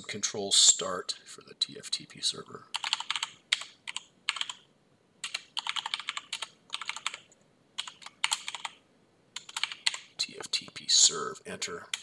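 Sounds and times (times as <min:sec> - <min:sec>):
computer keyboard typing: 0:02.7 - 0:04.6, 0:05.2 - 0:08.8, 0:09.4 - 0:10.1.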